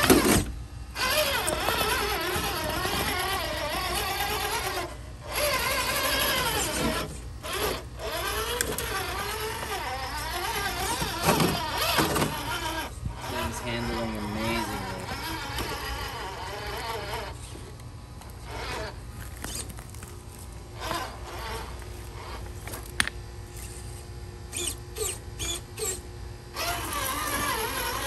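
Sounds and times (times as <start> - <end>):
electric motor whining: 0.0 - 28.0.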